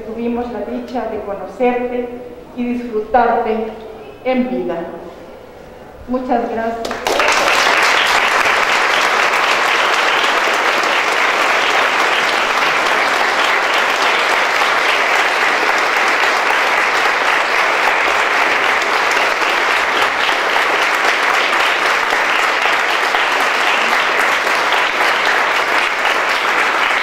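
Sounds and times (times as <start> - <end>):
crowd applauding: 6.8 - 27.0.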